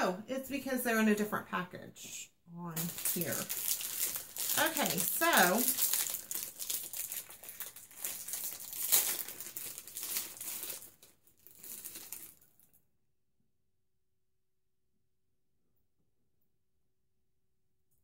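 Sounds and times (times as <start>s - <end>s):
plastic wrapper crinkling: 2.7s - 12.8s.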